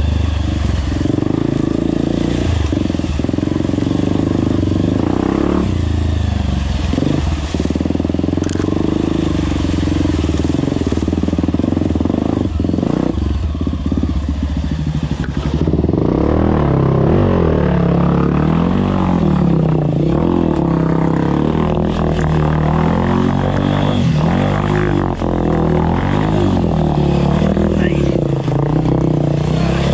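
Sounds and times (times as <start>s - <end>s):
dirt bike engine revving: 0.0s - 29.9s
wheels splashing water: 0.0s - 29.9s.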